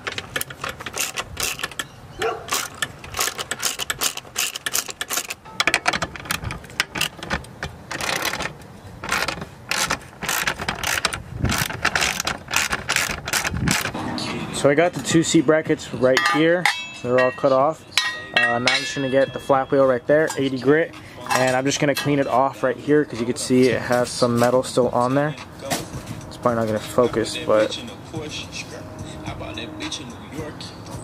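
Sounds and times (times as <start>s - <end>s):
ratchet wrench clicking: 0.0s - 1.9s, 2.5s - 14.0s.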